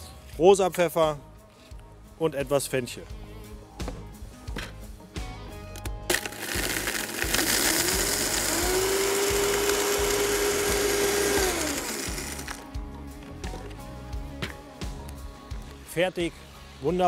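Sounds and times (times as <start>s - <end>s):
blender grinding spices: 6.1s - 12.7s.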